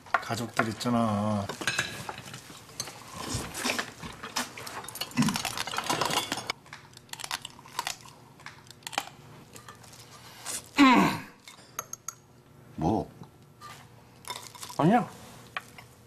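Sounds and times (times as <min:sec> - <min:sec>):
person crunching crab shells: 0:06.7 - 0:09.2.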